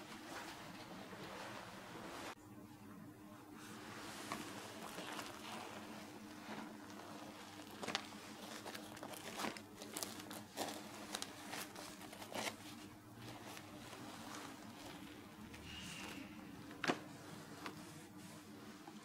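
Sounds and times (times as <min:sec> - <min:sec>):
faint steady hum: 0:00.0 - 0:19.0
bread rolls tearing and crackling: 0:06.6 - 0:15.1.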